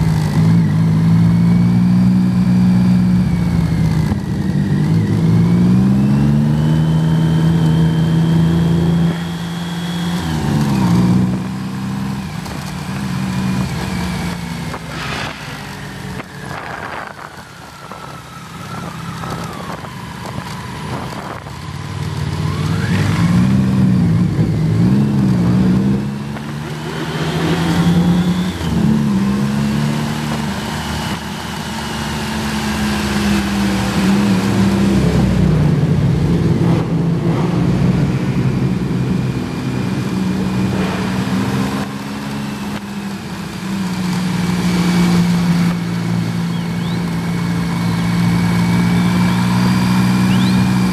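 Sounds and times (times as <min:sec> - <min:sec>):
motorcycle engine running: 0:00.0 - 0:29.5, 0:30.1 - 0:50.9
wind noise: 0:13.4 - 0:21.8.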